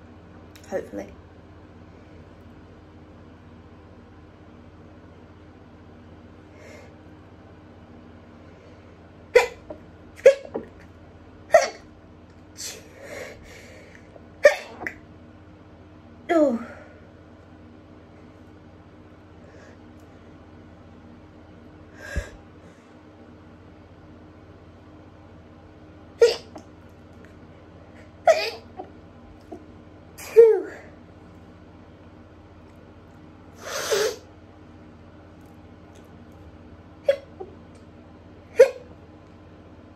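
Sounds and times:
woman stifling sneezes: 0:09.4 - 0:10.7, 0:14.4 - 0:15.0, 0:26.2 - 0:26.6, 0:28.3 - 0:28.8, 0:38.6 - 0:38.9.

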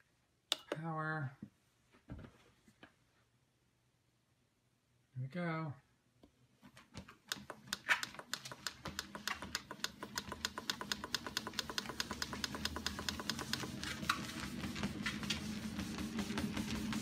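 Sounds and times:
dog's claws clicking on treadmill: 0:07.3 - 0:17.0
treadmill motor hum: 0:07.3 - 0:17.0.

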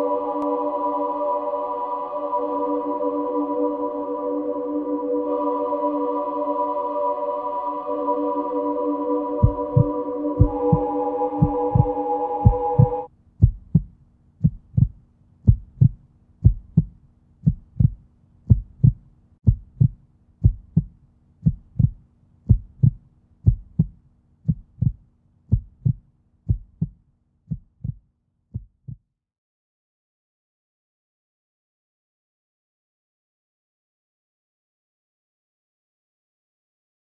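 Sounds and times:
held musical chord: 0:00.0 - 0:13.1
faint steady hum: 0:00.0 - 0:25.5
heartbeat-like double thump: 0:09.4 - 0:28.0, 0:28.6 - 0:29.0.

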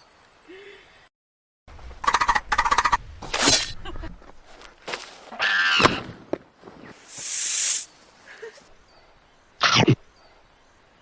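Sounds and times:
drawn-out high hiss: 0:07.0 - 0:08.6.

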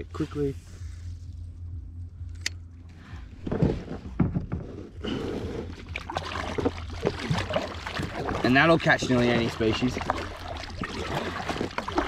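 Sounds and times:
paddle splashing in water: 0:05.6 - 0:12.0.

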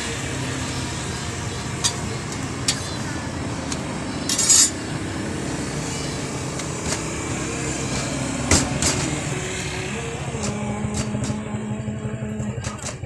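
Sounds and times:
busy street rumble: 0:00.0 - 0:13.0
metal spatula striking griddle: 0:01.8 - 0:03.0, 0:04.2 - 0:04.8.

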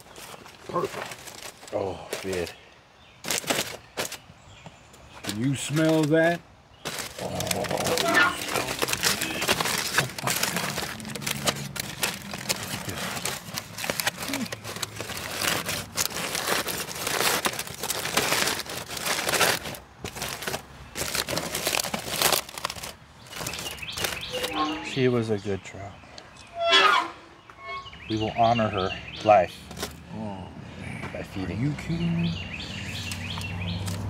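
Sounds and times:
aluminium foil crinkling: 0:00.0 - 0:02.6, 0:03.2 - 0:04.2, 0:05.2 - 0:25.0, 0:29.6 - 0:30.0.

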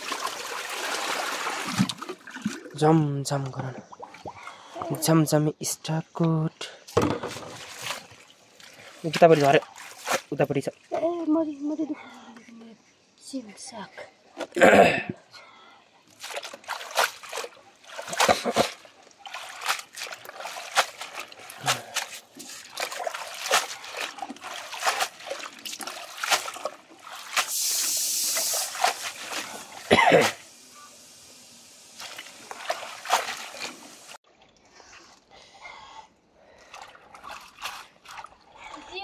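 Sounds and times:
water pouring: 0:00.0 - 0:02.9, 0:16.2 - 0:30.5, 0:31.8 - 0:34.2
water splashing and trickling: 0:00.0 - 0:14.6, 0:15.9 - 0:35.7, 0:36.4 - 0:39.0.

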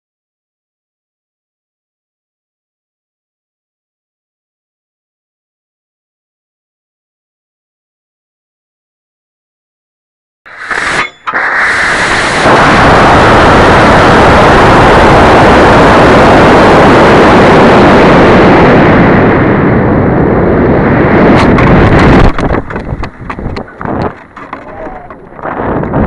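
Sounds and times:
sharp crack: 0:10.5 - 0:14.7
rocket motor roar: 0:10.5 - 0:26.0
wind buffeting microphone: 0:11.8 - 0:26.0.

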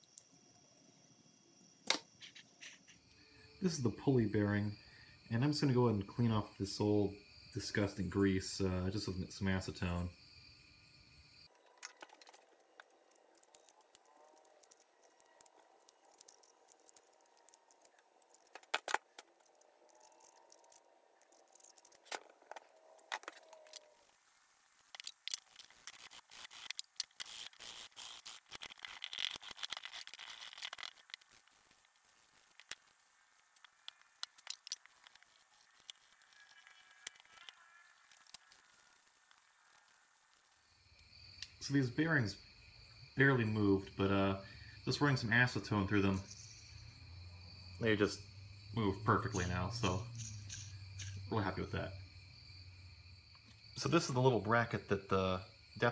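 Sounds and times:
small brush scrubbing: 0:25.4 - 0:32.9.

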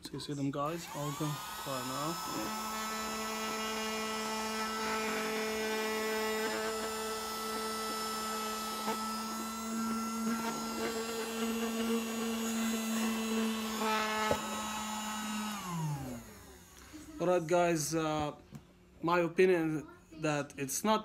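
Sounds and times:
mini vacuum cleaner motor humming: 0:00.7 - 0:17.5.

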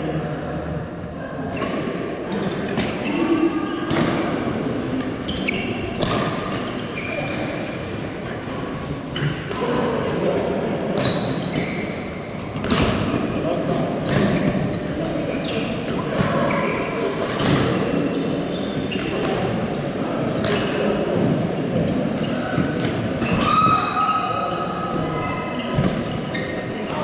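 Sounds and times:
shoe squeaks on court floor: 0:05.3 - 0:07.8, 0:11.0 - 0:12.1, 0:15.3 - 0:19.3, 0:22.2 - 0:27.0
racket striking shuttlecock: 0:06.0 - 0:06.6.

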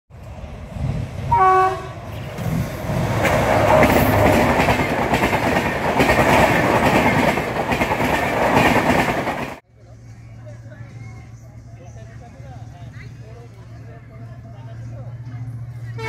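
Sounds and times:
locomotive rumble: 0:00.1 - 0:16.0
locomotive horn honk: 0:01.3 - 0:02.0
wheels clacking over rail joints: 0:02.0 - 0:09.6.

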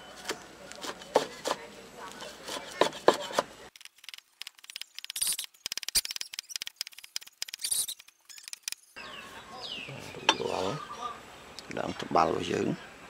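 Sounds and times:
cleaver chopping on wooden board: 0:00.8 - 0:01.6, 0:02.4 - 0:03.5.

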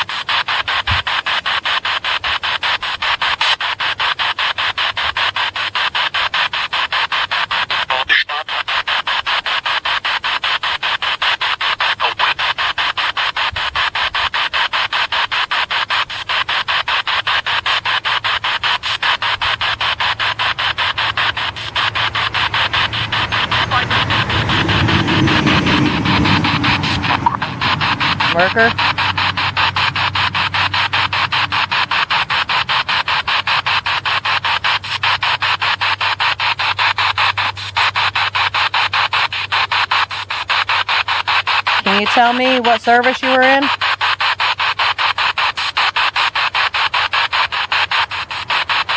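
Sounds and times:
radio static in short bursts: 0:00.0 - 0:48.9
low steady hum: 0:13.4 - 0:43.9.

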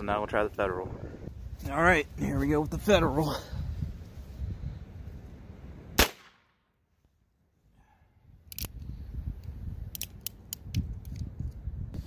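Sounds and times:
gunshot: 0:06.0 - 0:06.6
sharp clicks: 0:08.5 - 0:11.3.

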